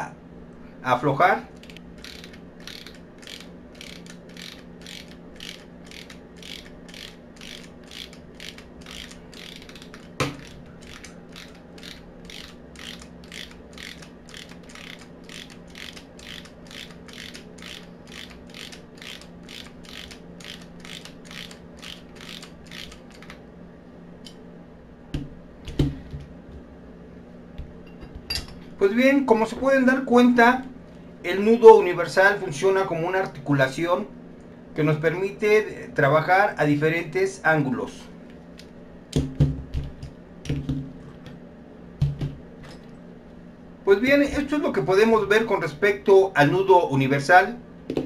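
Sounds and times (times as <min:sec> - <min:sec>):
socket ratchet clicking: 0:01.6 - 0:23.4.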